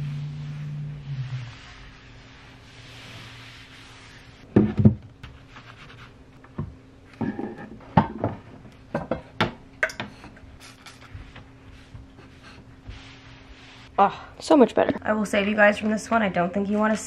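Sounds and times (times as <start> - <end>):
soft rub on a surface: 0.0 - 4.5, 11.0 - 13.9
objects knocking and clattering: 4.5 - 5.4, 6.5 - 11.4.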